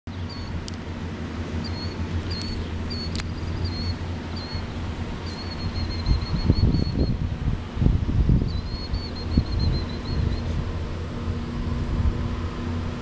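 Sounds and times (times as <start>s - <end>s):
bird chirping: 0.1s - 0.6s, 1.6s - 7.1s, 8.5s - 10.5s
wind buffeting microphone: 0.1s - 13.0s.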